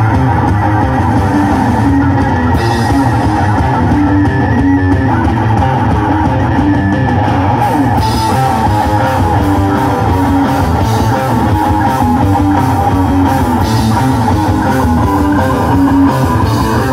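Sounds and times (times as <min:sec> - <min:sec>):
live rock band playing: 0:00.0 - 0:16.9.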